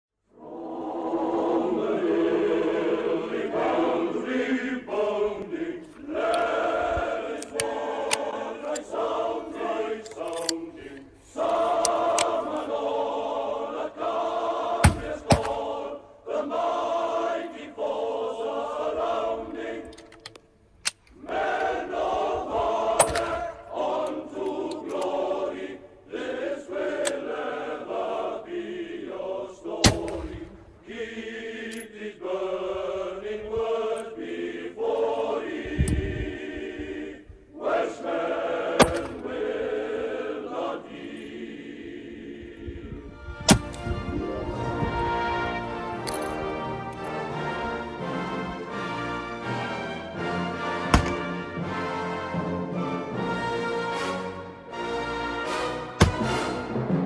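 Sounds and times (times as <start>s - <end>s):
choir singing: 0.2s - 57.0s
rifle shots: 50.9s - 51.4s.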